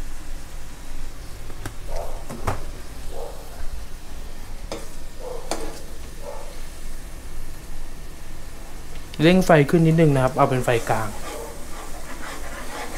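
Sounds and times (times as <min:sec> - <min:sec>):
sauce sizzling: 0:02.6 - 0:12.9
ladle scraping pan: 0:10.7 - 0:12.9.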